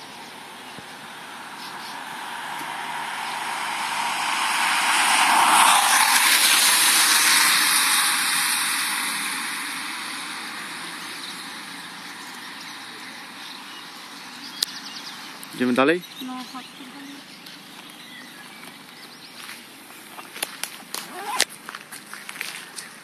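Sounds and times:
car tyres hissing on wet road: 0.0s - 15.7s.

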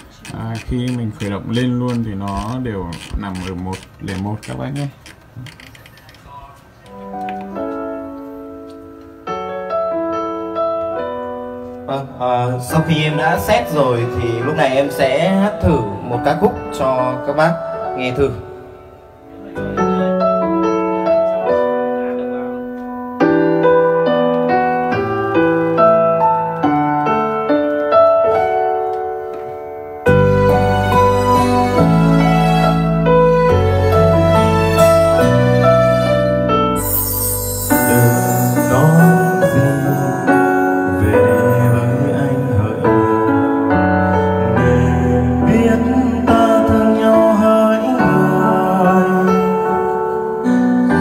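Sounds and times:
slow solo piano melody: 6.9s - 11.9s, 19.4s - 41.6s.

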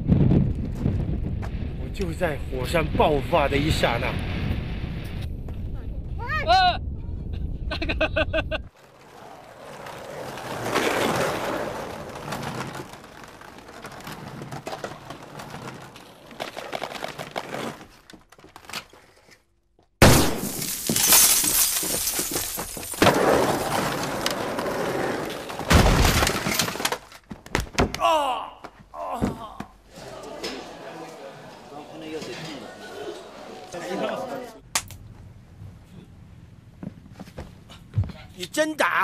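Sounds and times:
loud crashing and clattering: 20.0s - 27.1s.

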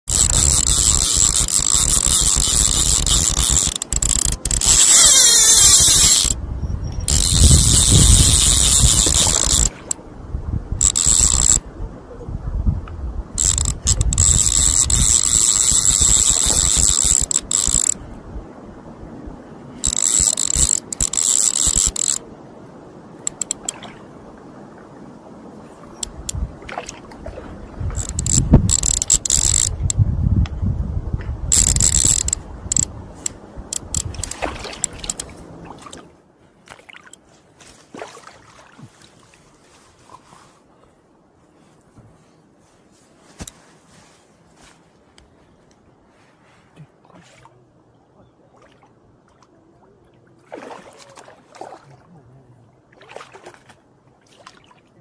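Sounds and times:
fishing reel gears whirring: 0.0s - 6.4s, 7.0s - 10.0s, 10.8s - 11.6s, 13.4s - 18.0s, 19.8s - 22.2s, 23.3s - 23.7s, 28.0s - 30.0s, 31.5s - 35.3s
water sloshing and splashing: 23.2s - 29.9s, 31.2s - 40.7s, 46.2s - 55.0s.

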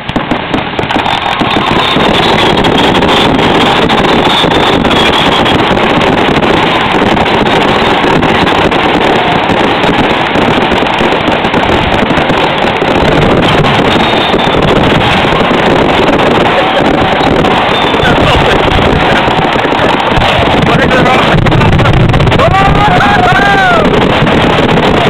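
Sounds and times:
fireworks barrage: 0.0s - 25.0s.

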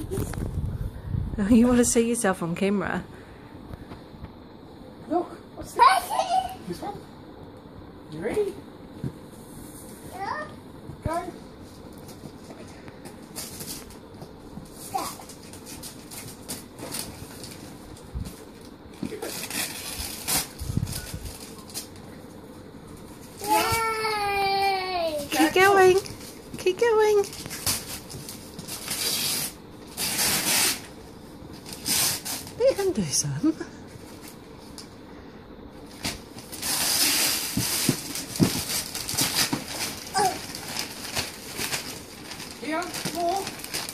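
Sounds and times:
wrapping paper tearing: 19.1s - 22.0s, 27.3s - 31.0s, 31.6s - 32.6s, 36.0s - 43.9s.

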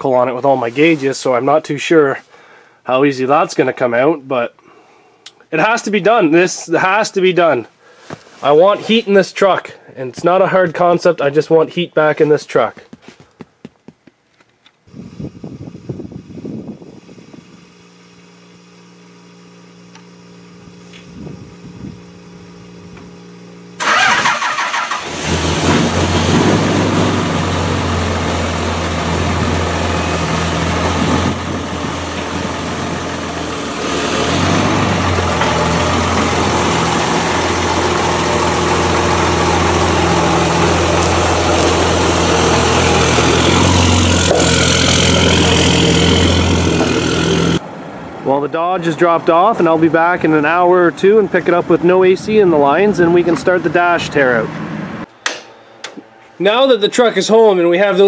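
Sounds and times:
diesel engine starting and idling: 20.6s - 55.1s.

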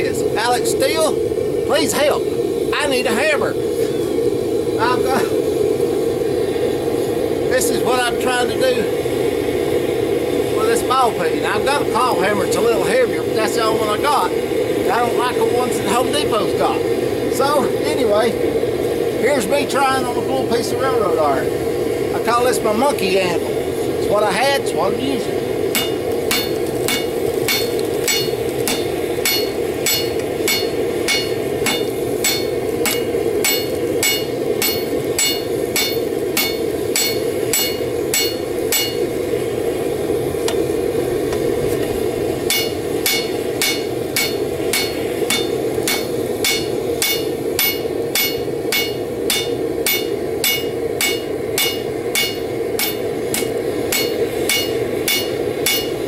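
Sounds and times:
steady rushing background: 24.8s - 39.6s
hammer blows on anvil: 25.7s - 39.1s, 42.5s - 56.0s.

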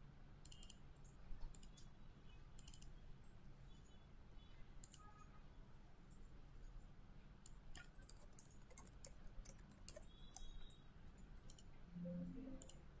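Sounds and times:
mouse clicks: 0.4s - 1.9s, 2.6s - 3.0s, 4.8s - 5.1s, 7.4s - 11.7s, 12.6s - 12.8s
keyboard typing: 7.5s - 11.7s, 12.6s - 12.9s
short low tone: 12.0s - 12.6s.

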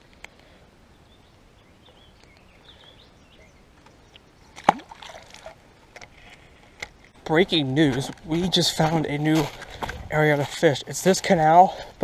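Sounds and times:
fish splashing into water: 4.6s - 5.6s
water sloshing and rattle: 4.6s - 6.5s.

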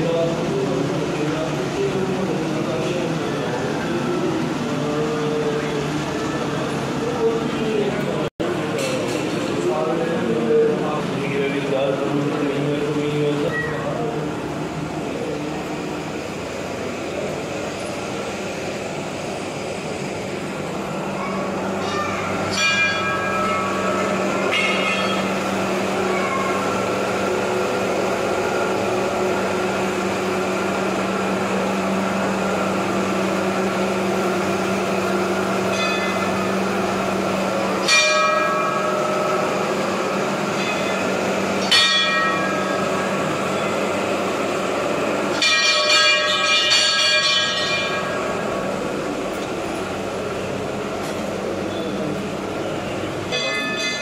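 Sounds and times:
steady hum: 0.0s - 54.0s
brass bells ringing: 21.8s - 26.9s, 35.6s - 37.2s, 37.8s - 44.0s, 45.3s - 48.8s, 53.3s - 54.0s.

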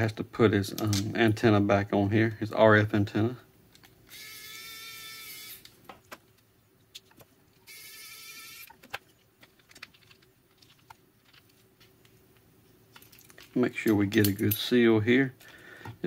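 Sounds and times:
electric screwdriver whirring: 4.1s - 5.6s, 7.7s - 8.7s.

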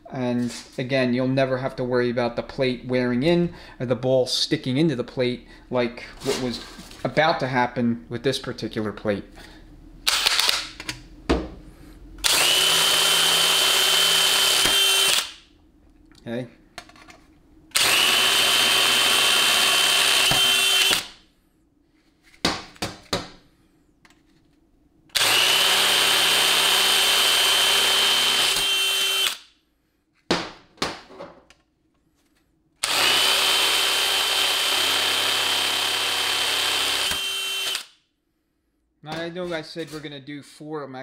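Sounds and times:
drill whining: 12.2s - 15.4s, 17.7s - 21.2s, 25.1s - 29.5s, 32.8s - 37.9s.

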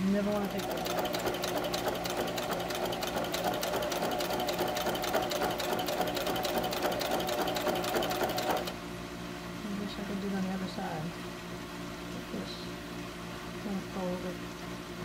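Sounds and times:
sewing machine stitching: 0.1s - 8.8s.

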